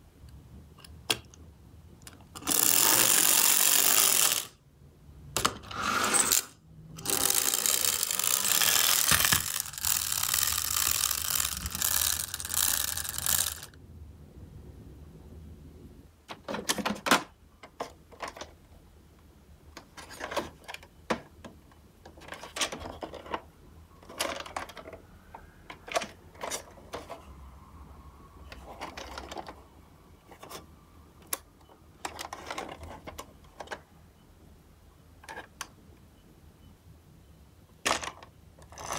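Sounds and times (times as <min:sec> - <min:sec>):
plastic toy cars clicking: 0:02.0 - 0:04.6, 0:06.2 - 0:13.7, 0:19.8 - 0:25.0, 0:32.0 - 0:33.8, 0:37.9 - 0:38.9
clockwork toy motor buzzing: 0:02.4 - 0:04.6, 0:05.7 - 0:13.7.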